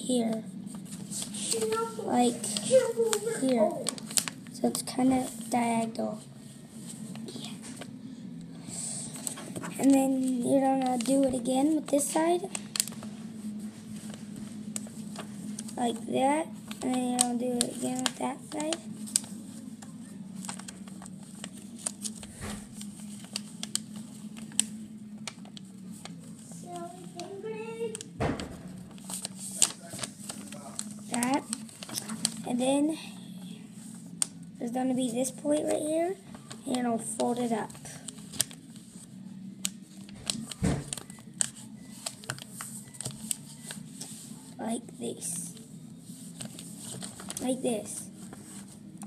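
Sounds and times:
steady low hum: 0:00.0 - 0:49.0
paper being folded and creased: 0:00.1 - 0:07.9, 0:09.1 - 0:49.0
paper tapping on table: 0:28.0 - 0:30.1, 0:40.1 - 0:43.4.

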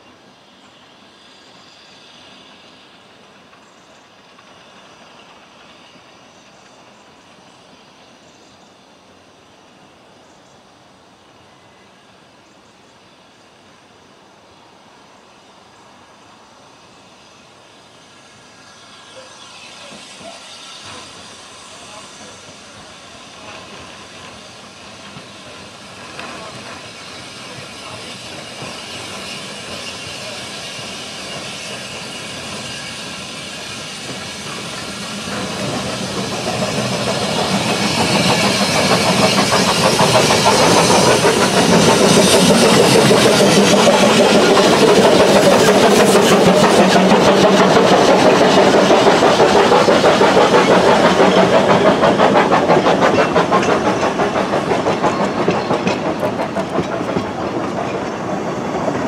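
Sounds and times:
steam hiss: 0:00.0 - 0:59.0
steam locomotives passing: 0:00.0 - 0:59.0
carriages clattering over rail joints: 0:34.1 - 0:59.0.

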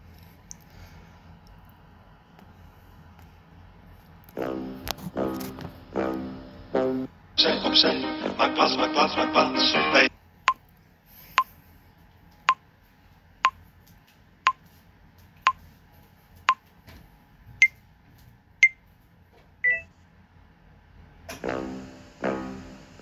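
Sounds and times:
countdown timer beeps: 0:19.6 - 0:19.9.

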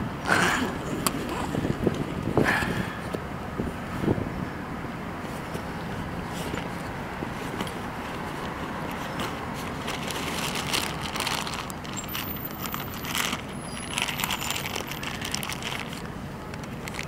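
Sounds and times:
street traffic hum: 0:00.0 - 0:17.0
rummaging through backpack: 0:06.3 - 0:17.0
plastic bag crinkling: 0:08.3 - 0:17.0.

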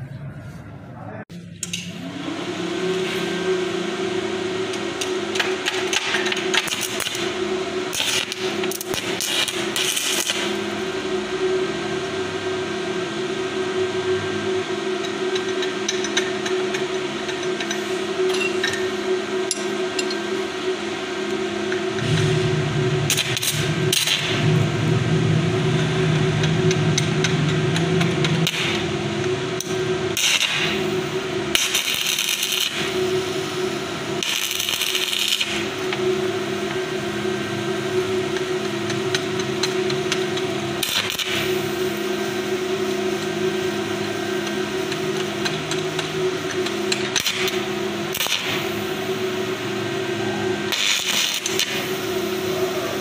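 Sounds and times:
welder electrical hum: 0:00.0 - 0:53.0
crackling welding arc: 0:05.0 - 0:11.0, 0:22.0 - 0:37.3, 0:38.0 - 0:49.3, 0:50.6 - 0:53.0.

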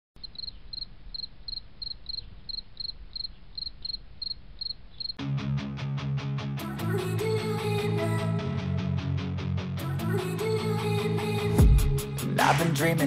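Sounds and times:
cricket chirping: 0:00.2 - 0:05.2.

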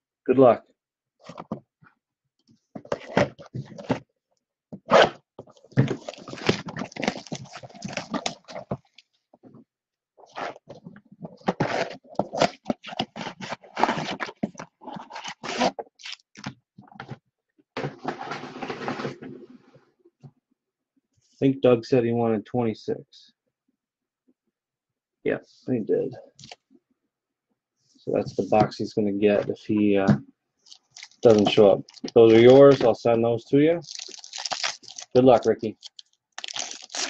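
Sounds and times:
foil packs rustling: 0:05.7 - 0:09.0, 0:30.7 - 0:33.0, 0:33.8 - 0:37.0
plastic shrink wrap tearing: 0:05.9 - 0:09.0, 0:30.7 - 0:32.9, 0:33.8 - 0:37.0.

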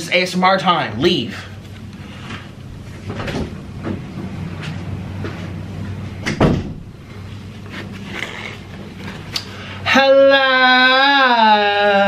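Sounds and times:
dull thump: 0:06.3 - 0:06.9.

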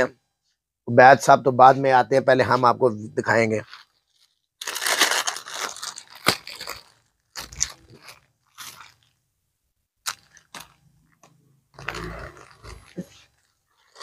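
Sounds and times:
plastic bag crinkling: 0:03.6 - 0:09.2, 0:10.0 - 0:11.2, 0:11.8 - 0:14.0.

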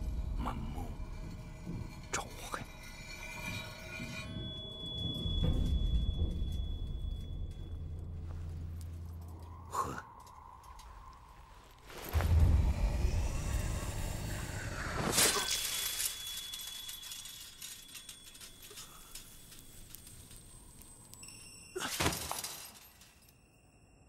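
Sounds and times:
high ringing tone: 0:03.1 - 0:08.0
sharp shattering: 0:15.0 - 0:20.9, 0:21.8 - 0:23.3.

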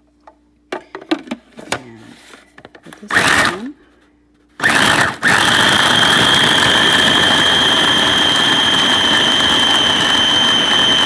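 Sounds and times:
food processor motor whirring: 0:03.1 - 0:03.5, 0:04.6 - 0:11.0.

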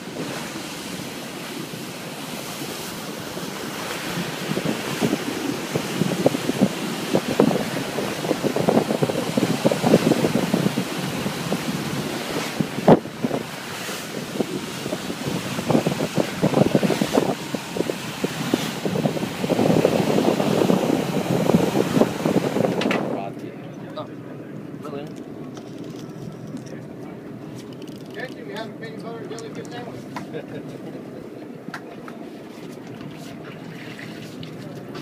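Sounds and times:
wind buffeting microphone: 0:00.0 - 0:30.0
boat wake rushing: 0:00.0 - 0:35.0.

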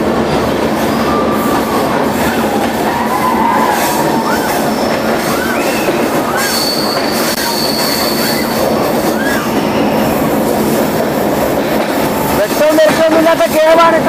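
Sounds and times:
train wheels rumbling on rails: 0:00.0 - 0:14.0
thin high wheel squeal: 0:03.2 - 0:10.0.

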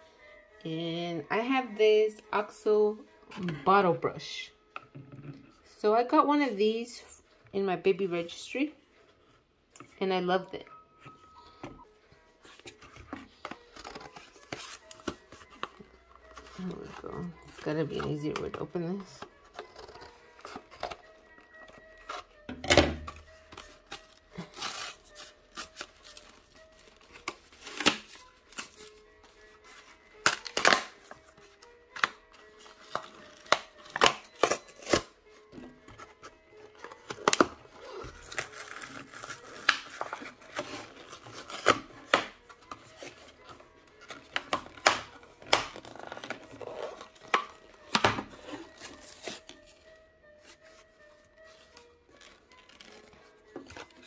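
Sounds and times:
faint background music: 0:00.0 - 0:54.0
packaging crackling and tearing: 0:12.7 - 0:15.7, 0:23.1 - 0:35.2, 0:35.9 - 0:49.8, 0:51.5 - 0:54.0
scissors snipping plastic: 0:13.4 - 0:15.7, 0:27.0 - 0:28.8, 0:30.2 - 0:31.2, 0:32.0 - 0:35.1, 0:36.7 - 0:49.5.

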